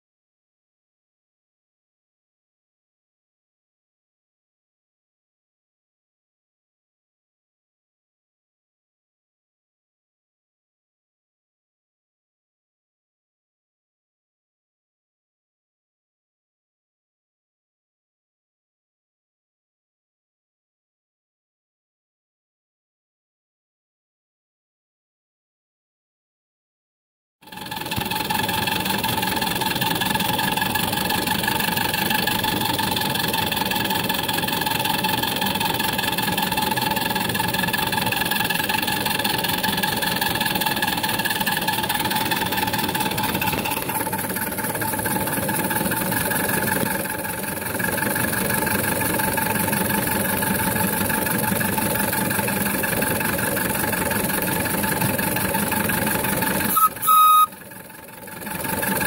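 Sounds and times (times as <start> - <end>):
model steam engine running: 27.4 - 59.0.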